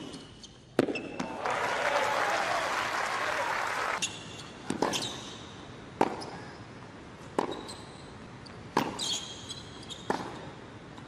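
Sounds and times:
shoes squeaking on court: 4.0 - 6.5, 7.2 - 10.6.

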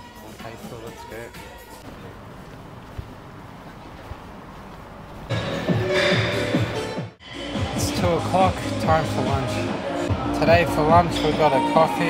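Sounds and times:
low outdoor rumble: 1.8 - 5.9.

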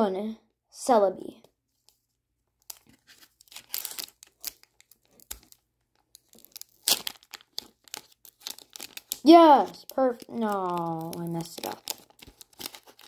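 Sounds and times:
foil wrapper tearing and crinkling: 2.6 - 13.0.

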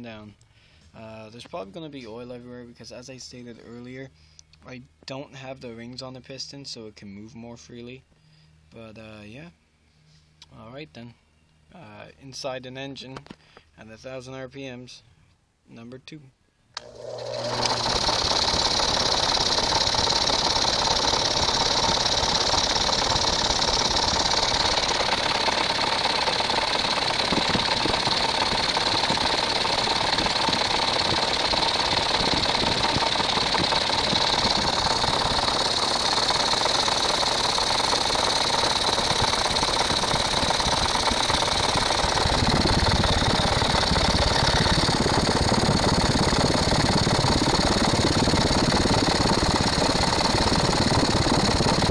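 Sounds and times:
engine clattering driven by motor: 16.8 - 51.9.

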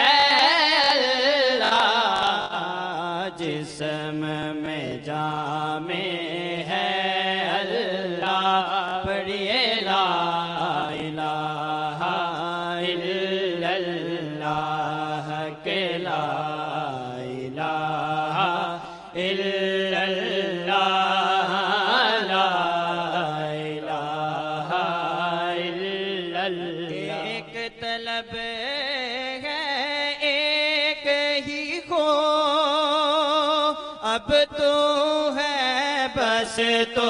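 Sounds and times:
men chanting a hymn: 0.0 - 28.8.

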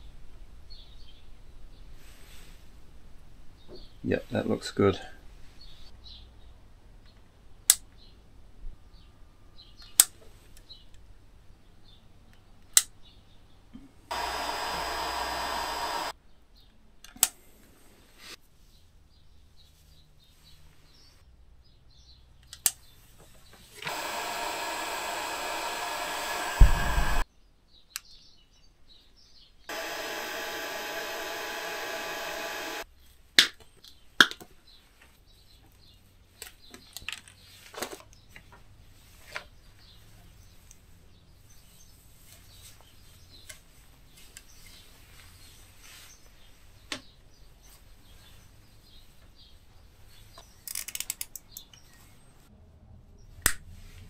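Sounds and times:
electric hand tool hissing: 14.1 - 16.1, 23.8 - 27.2, 29.7 - 32.8
low thump: 26.6 - 27.2.

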